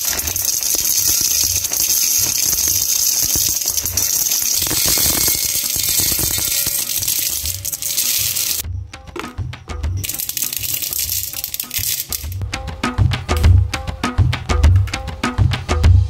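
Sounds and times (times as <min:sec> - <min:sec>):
pasta rattling into metal pot: 0:00.0 - 0:08.6, 0:10.0 - 0:12.4.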